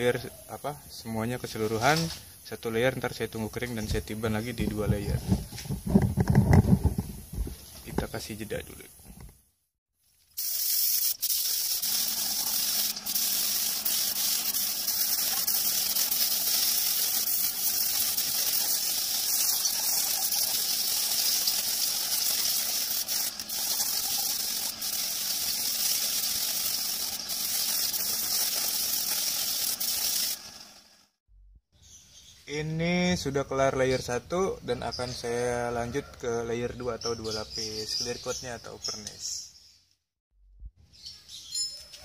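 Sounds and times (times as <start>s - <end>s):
spray gun hissing: 10.4s - 30.8s.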